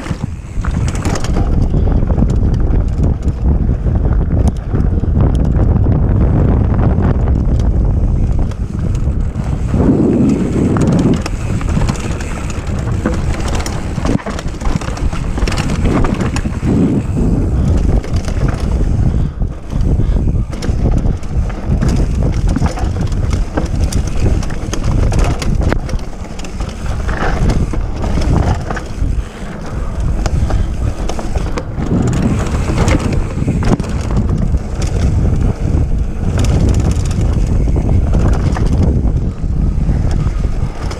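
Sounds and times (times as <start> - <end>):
tyres rolling over dirt: 0.0 - 1.8, 8.2 - 40.9
bike knocks and rattles: 0.0 - 40.9
wind buffeting microphone: 0.0 - 40.9.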